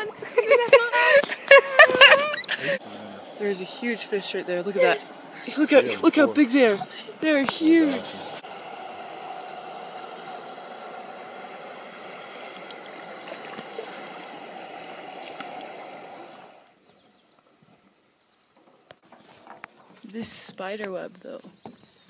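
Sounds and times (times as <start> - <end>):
faint steady hum: 0.0 - 17.8.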